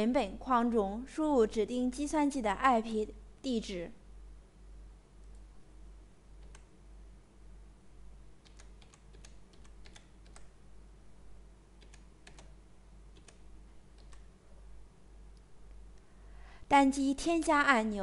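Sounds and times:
low steady hum: 0.0s - 18.0s
faint keyboard typing: 5.2s - 5.5s, 6.4s - 6.8s, 8.4s - 10.6s, 11.7s - 14.6s.

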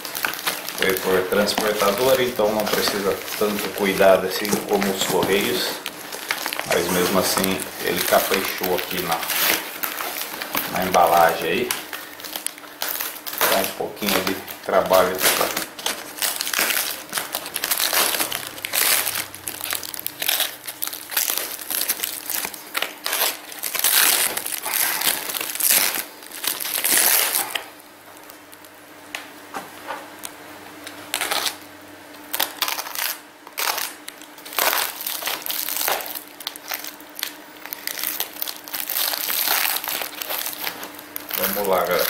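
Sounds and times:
foam wrapping crinkling: 0.0s - 30.2s, 30.8s - 42.0s
utility knife cutting packing tape: 0.1s - 27.7s.

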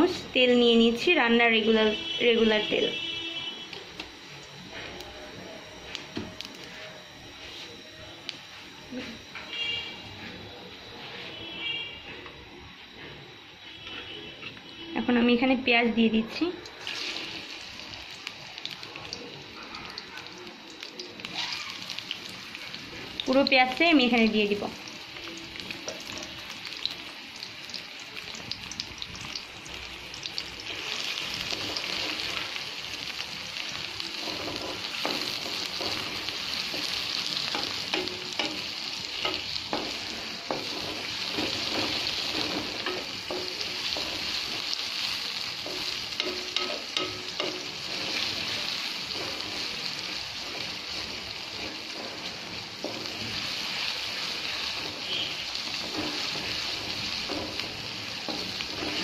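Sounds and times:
onions sizzling in hot oil: 0.0s - 10.2s, 12.3s - 59.0s
wooden spatula scraping a pan: 34.2s - 38.6s, 39.2s - 44.7s, 45.6s - 59.0s.

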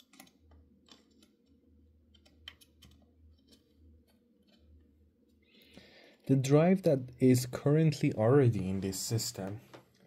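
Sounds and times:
small clicks and taps: 0.0s - 4.7s
faint low hum: 0.0s - 10.0s.

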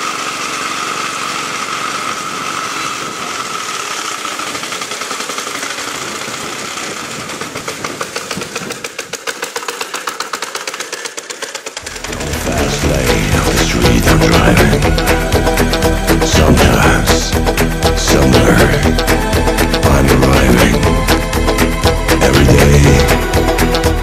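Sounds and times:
single-cylinder engine running: 0.0s - 24.0s
music: 11.8s - 24.0s.

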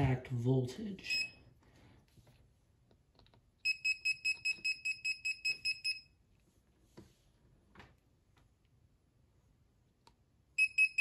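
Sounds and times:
voltage detector beeping rapidly: 3.7s - 6.0s, 10.6s - 11.0s.

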